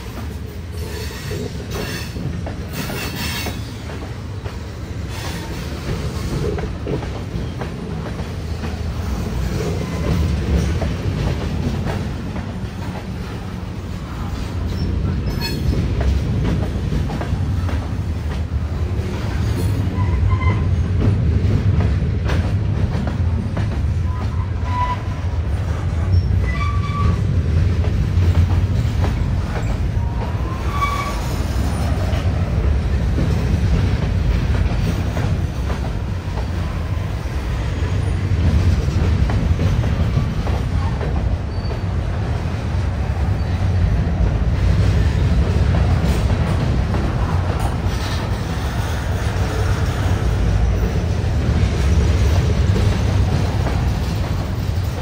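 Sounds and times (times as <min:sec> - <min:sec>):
freight train rumbling past: 0:00.0 - 0:55.0
high train wheel squeals: 0:00.3 - 0:04.1, 0:04.9 - 0:06.6, 0:07.2 - 0:07.8, 0:09.0 - 0:10.9, 0:14.0 - 0:16.0, 0:19.2 - 0:21.0, 0:23.9 - 0:27.4, 0:28.7 - 0:32.2, 0:40.8 - 0:42.1, 0:43.2 - 0:43.8, 0:47.6 - 0:52.5.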